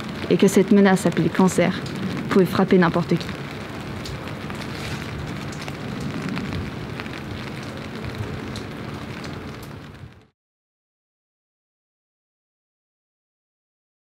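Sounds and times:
rain pattering: 0:00.0 - 0:10.3.

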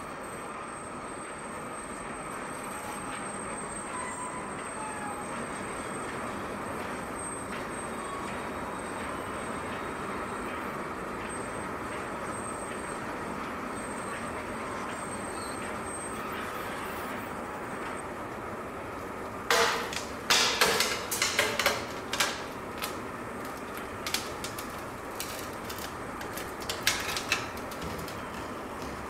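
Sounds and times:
clattering knocks: 0:19.5 - 0:22.5.

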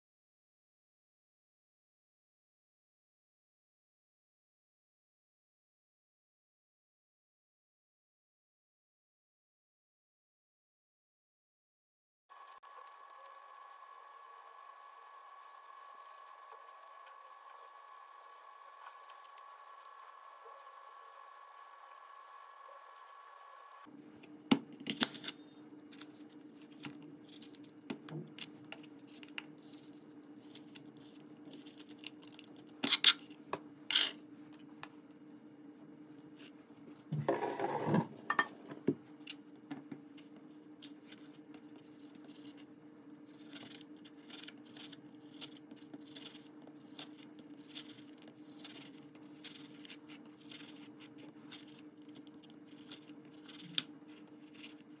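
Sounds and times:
steady faint hum: 0:12.4 - 0:55.0
knife cutting apple on board: 0:43.3 - 0:55.0.

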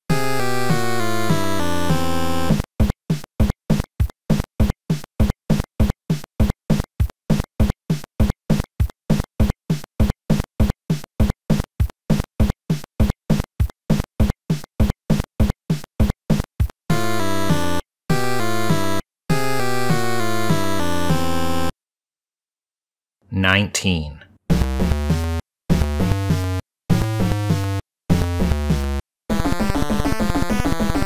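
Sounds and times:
chiptune background music: 0:00.1 - 0:03.5, 0:16.3 - 0:21.7, 0:24.5 - 0:31.0.

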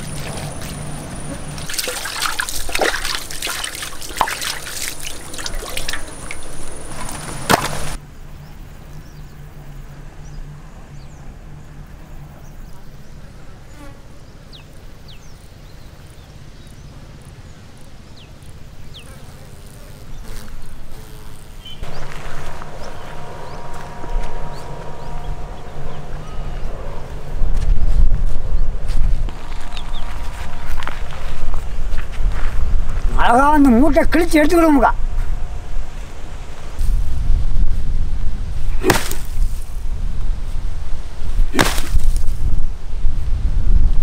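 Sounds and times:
wet splashing and dripping: 0:01.7 - 0:07.9.

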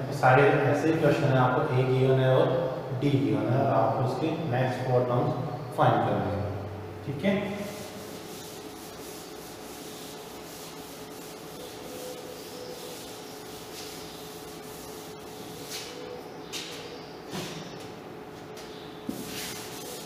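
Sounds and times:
eraser rubbing on chalkboard: 0:07.6 - 0:16.1, 0:19.1 - 0:20.0.

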